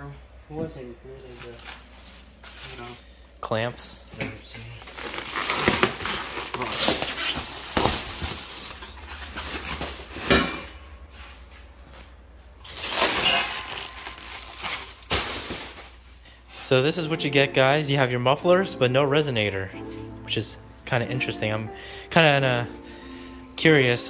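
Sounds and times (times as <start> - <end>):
plastic wrapping crinkling: 1.2 - 3.0, 4.4 - 10.8, 12.6 - 16.3.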